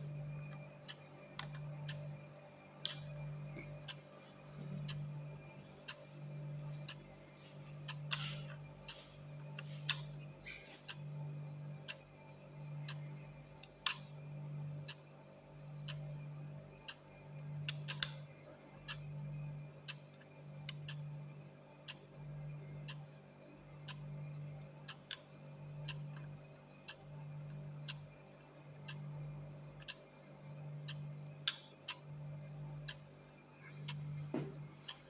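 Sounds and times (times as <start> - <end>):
faint low hum: 0.0 - 35.0
sharp plastic clicks: 2.8 - 3.2, 12.9 - 14.1, 17.7 - 18.2, 30.9 - 32.0.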